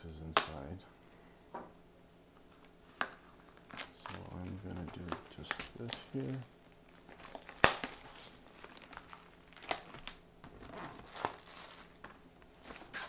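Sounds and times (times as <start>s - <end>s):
packaging crinkling and tearing: 2.6s - 13.0s.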